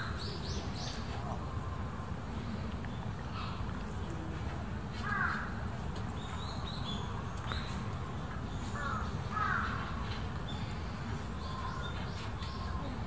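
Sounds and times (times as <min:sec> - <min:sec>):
small birds chirping: 0:00.0 - 0:13.0
crows cawing: 0:05.0 - 0:05.5, 0:08.8 - 0:09.8.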